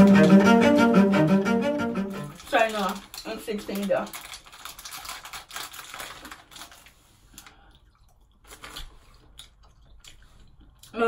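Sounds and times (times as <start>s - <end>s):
rustling and clicking handling noise: 2.3s - 7.6s.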